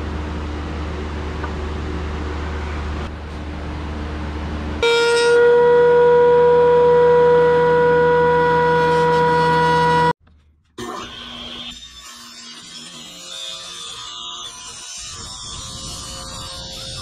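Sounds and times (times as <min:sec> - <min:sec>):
low machine hum: 0:00.0 - 0:11.7
thickness planer high whine: 0:04.5 - 0:10.2, 0:10.8 - 0:17.0.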